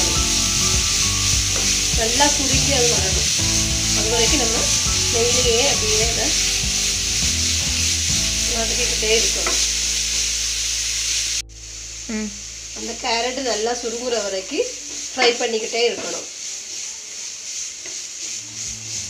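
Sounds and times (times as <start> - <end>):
spatula stirring and scraping: 0.0 - 9.8, 14.9 - 19.0
carrots sizzling in a pan: 0.0 - 19.0.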